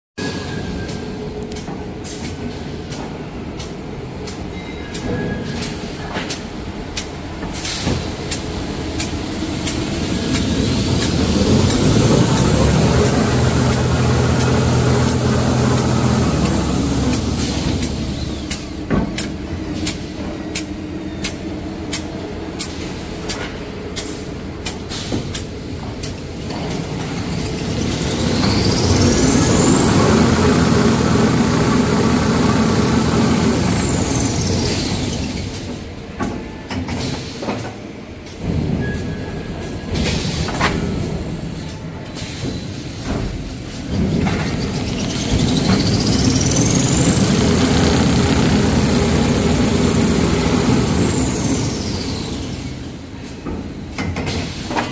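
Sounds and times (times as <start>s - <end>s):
machine hum: 8.5s - 22.6s, 27.2s - 35.8s, 44.2s - 52.9s
high machine whine: 27.4s - 35.6s, 44.5s - 52.9s.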